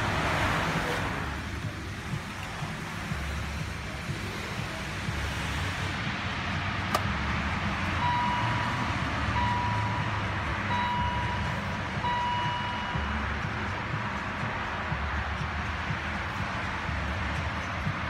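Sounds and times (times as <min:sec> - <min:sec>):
electronic beeps: 0:07.9 - 0:13.6.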